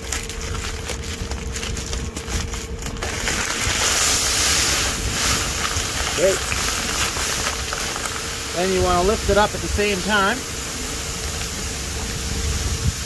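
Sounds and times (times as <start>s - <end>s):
granules pouring: 0.0s - 13.0s
wind buffeting microphone: 10.6s - 13.0s.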